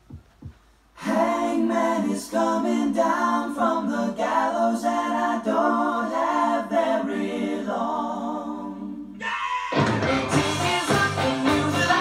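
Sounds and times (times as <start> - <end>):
voices singing in harmony: 1.0 - 12.0.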